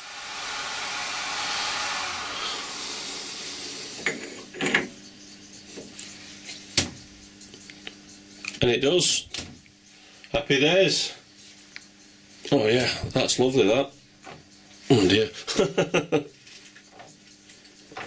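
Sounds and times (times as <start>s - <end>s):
steady hiss: 0.0s - 4.5s.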